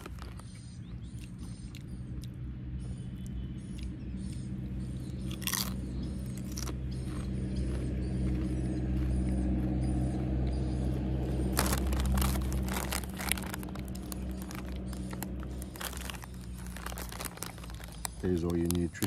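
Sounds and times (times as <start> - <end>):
chip packet crinkling: 0.0 - 0.6, 5.2 - 6.8, 11.4 - 19.0
low hum: 0.0 - 18.7.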